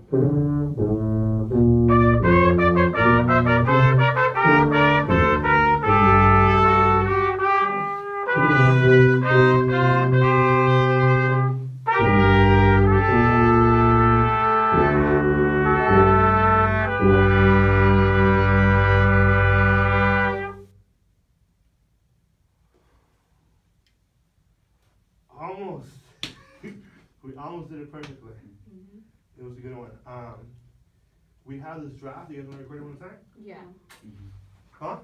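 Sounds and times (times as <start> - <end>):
brass music: 0.0 - 20.8.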